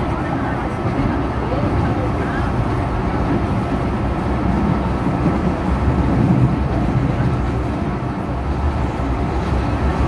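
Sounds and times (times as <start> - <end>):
train interior rumble: 0.0 - 10.0.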